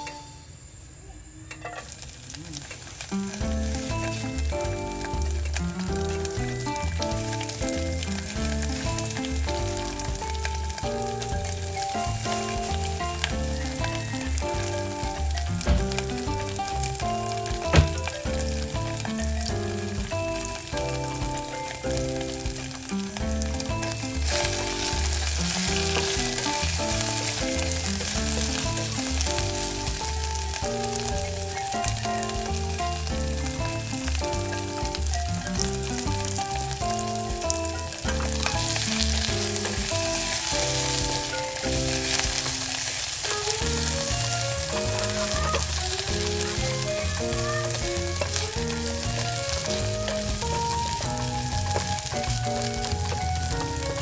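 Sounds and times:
fish sizzling in hot oil: 0:01.5 - 0:54.0
background music: 0:03.2 - 0:54.0
wooden spatula stirring: 0:22.1 - 0:54.0.

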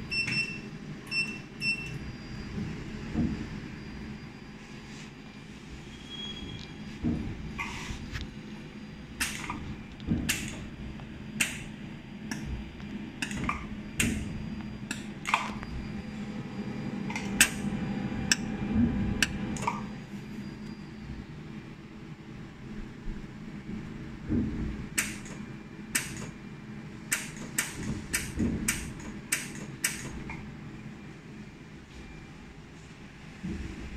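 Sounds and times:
laser welding machine hum: 0:00.0 - 0:33.3
laser welder sharp snaps: 0:25.0 - 0:25.3.

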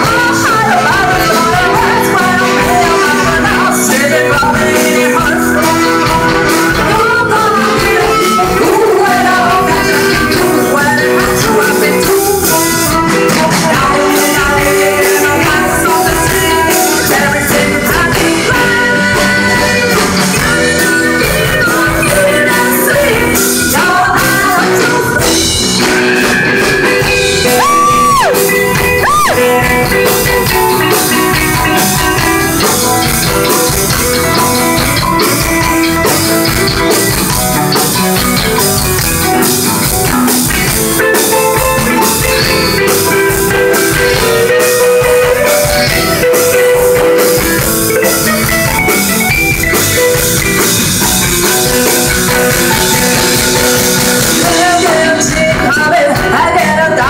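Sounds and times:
women singing pop: 0:00.0 - 0:34.4, 0:52.3 - 0:57.0
band with electric guitar and drums: 0:00.0 - 0:57.0.

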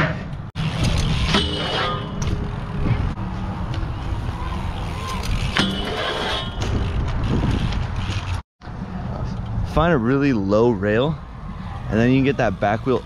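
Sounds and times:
bike pegs grinding steel rail: 0:00.0 - 0:08.4
bike tyres rolling over concrete: 0:00.6 - 0:08.4
wind rush: 0:02.2 - 0:05.6, 0:06.4 - 0:10.0.

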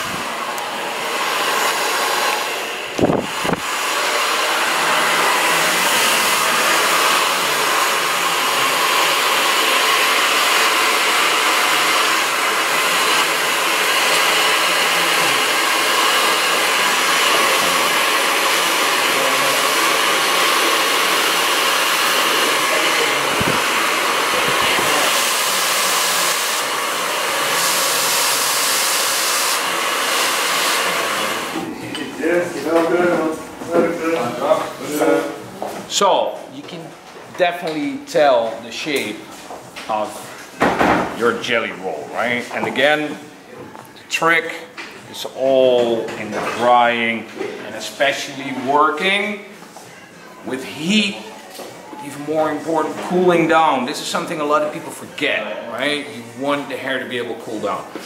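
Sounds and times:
hair dryer blowing: 0:00.0 - 0:35.5.

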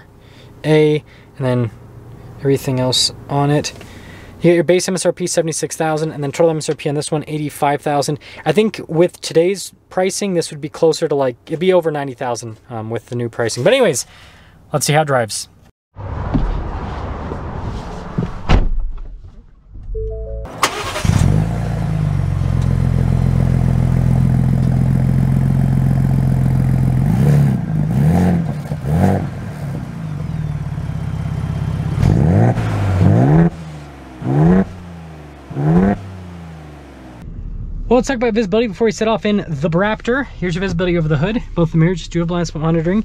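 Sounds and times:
car engine starting and idling: 0:20.0 - 0:27.1, 0:28.5 - 0:43.0
engine revving blips: 0:27.0 - 0:37.8.

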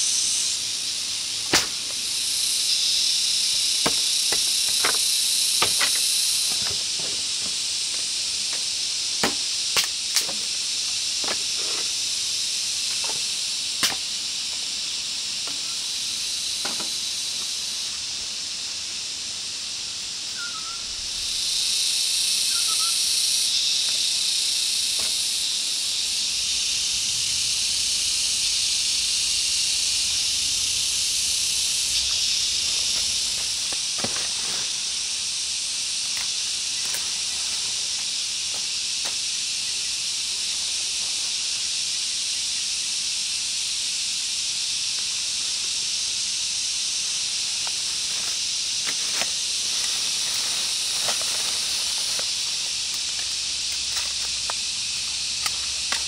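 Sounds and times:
high-pitched insect chorus: 0:00.0 - 0:56.0.

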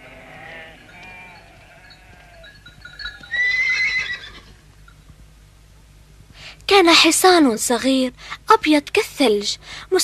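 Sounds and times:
foal crying whinnies: 0:00.0 - 0:02.5, 0:03.2 - 0:04.6.

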